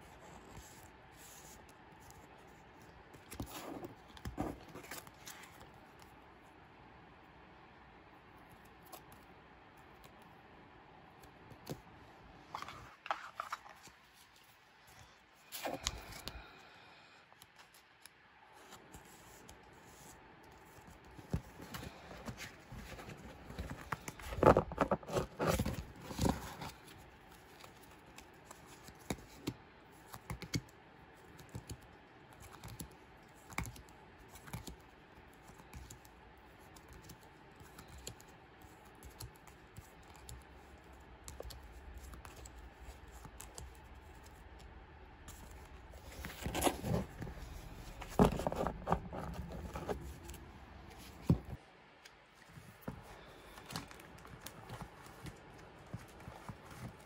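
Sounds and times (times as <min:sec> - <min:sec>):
plastic sleeved cards shuffled: 0:12.5 - 0:14.4, 0:18.7 - 0:30.6, 0:45.2 - 0:51.6.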